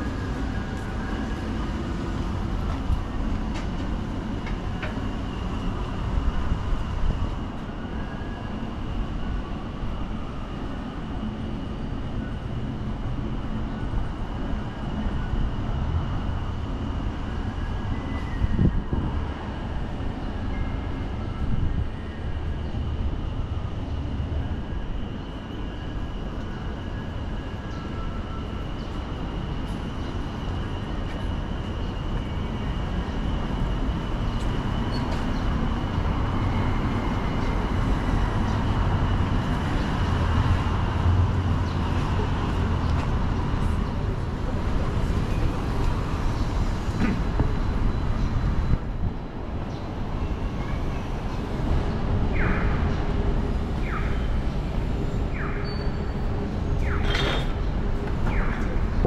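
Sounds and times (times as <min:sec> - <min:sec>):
passing vehicles rumbling: 0:32.8 - 0:59.0.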